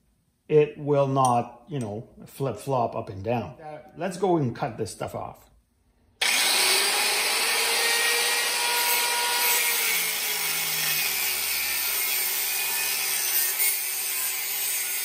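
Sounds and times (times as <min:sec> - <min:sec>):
angle grinder cutting steel: 0:06.2 - 0:15.0.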